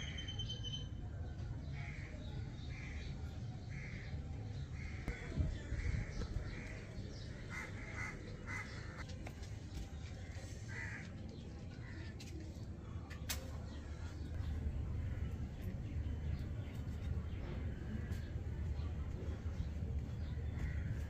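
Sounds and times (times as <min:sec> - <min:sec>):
crows cawing: 0:07.4 - 0:09.0, 0:10.7 - 0:11.2
low steady rumble: 0:13.8 - 0:21.0.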